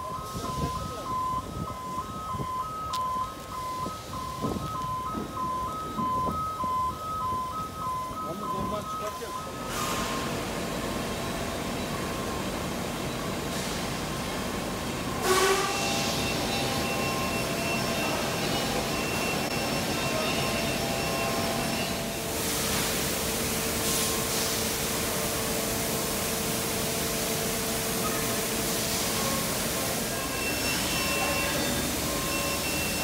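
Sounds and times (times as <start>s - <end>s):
faint steady tones: 0.0s - 15.1s
industrial hum and hiss: 0.0s - 33.0s.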